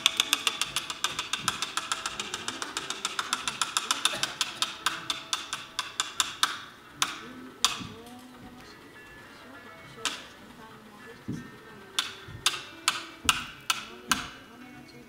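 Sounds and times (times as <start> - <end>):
sharp knocks: 0.0 - 8.0, 11.3 - 14.4
fast ringing percussive clicking: 0.0 - 8.2.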